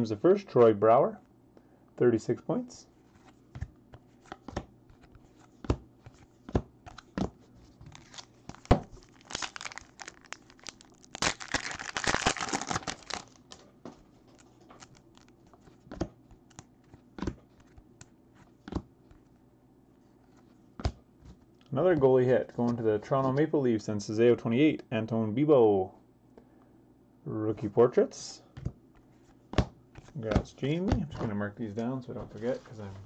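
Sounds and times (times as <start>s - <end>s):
foil pack tearing and rustling: 7.9s - 13.6s.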